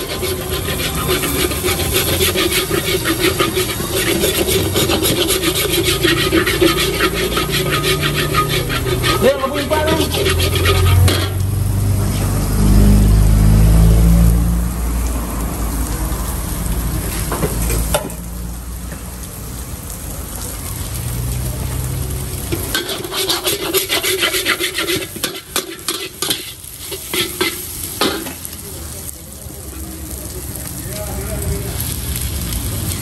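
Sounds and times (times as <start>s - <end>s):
metal ladle scraping a wok: 0.0s - 12.3s, 22.3s - 28.6s
food sizzling in a wok: 0.0s - 33.0s.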